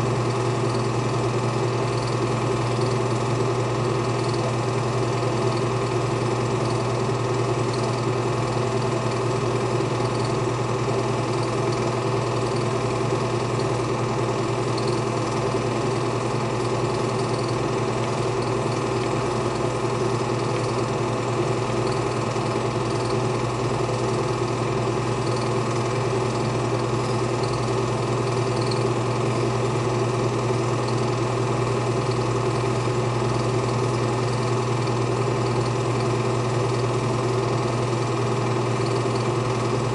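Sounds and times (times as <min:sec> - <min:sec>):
film projector motor hum: 0:00.0 - 0:39.9
projector mechanical ticking: 0:01.9 - 0:04.5, 0:11.2 - 0:12.9, 0:13.5 - 0:21.0, 0:21.7 - 0:25.9, 0:26.5 - 0:29.5.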